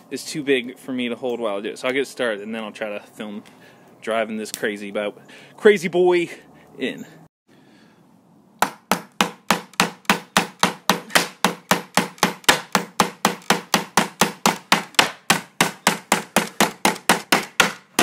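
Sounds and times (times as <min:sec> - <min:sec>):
hammer driving nail into wood: 0:08.6 - 0:18.0.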